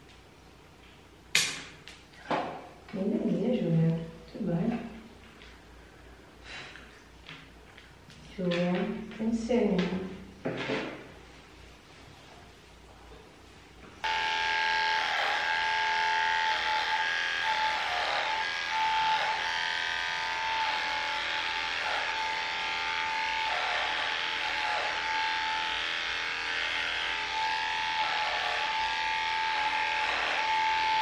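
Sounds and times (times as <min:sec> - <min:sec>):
electric clippers whining: 0:14.0 - 0:31.0.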